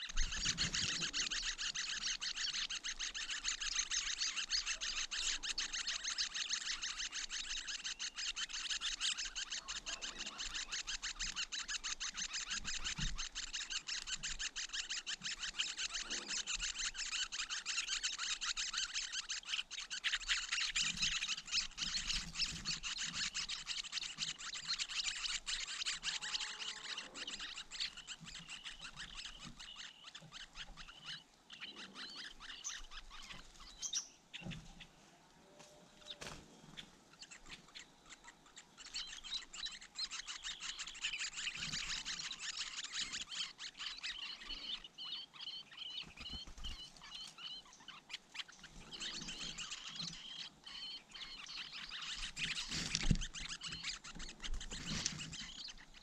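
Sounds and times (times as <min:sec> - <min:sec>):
nestlings begging with high chirps: 0:00.0 - 0:56.0.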